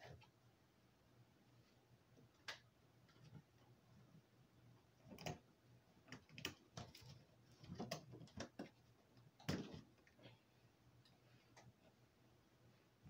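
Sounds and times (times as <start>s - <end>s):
low steady hum: 0.0s - 13.0s
faint clicks and light knocks: 2.1s - 4.1s, 4.8s - 10.4s, 11.0s - 12.0s.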